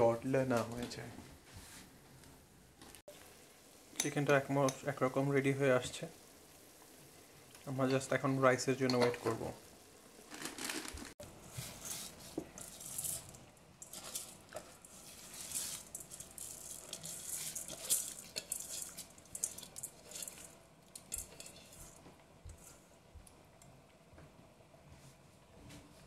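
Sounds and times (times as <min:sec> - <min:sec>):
rice pouring into pot: 0:10.2 - 0:22.0.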